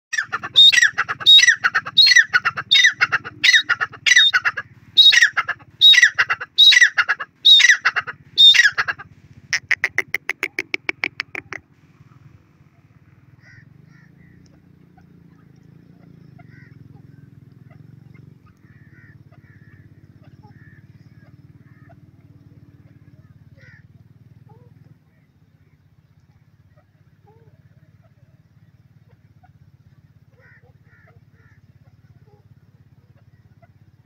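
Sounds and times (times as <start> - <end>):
francolin calling: 0.1 - 11.7
faint low rumble: 8.1 - 34.0.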